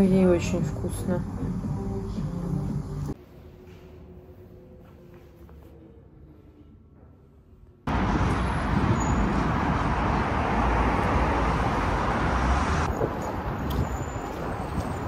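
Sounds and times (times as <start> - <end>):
city street traffic rumble: 0.0 - 3.2, 7.8 - 15.0.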